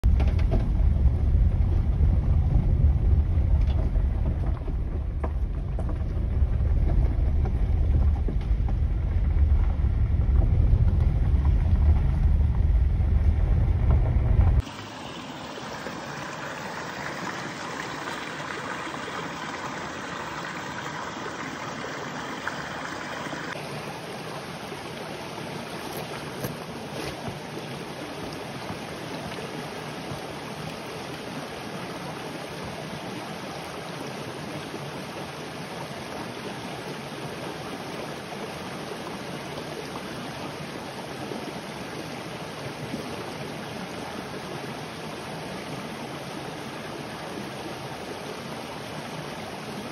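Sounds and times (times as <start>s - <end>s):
brook babbling over rocks: 14.6s - 49.9s.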